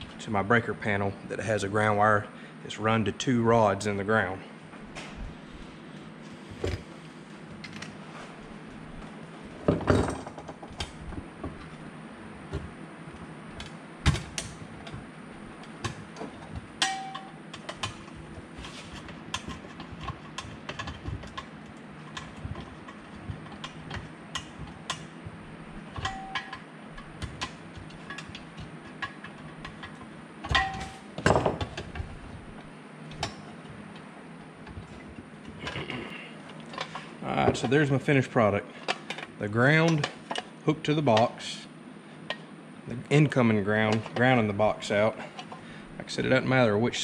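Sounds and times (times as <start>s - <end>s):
steady low hum: 0.0s - 47.0s
metallic pings: 16.8s - 17.4s, 26.1s - 26.6s.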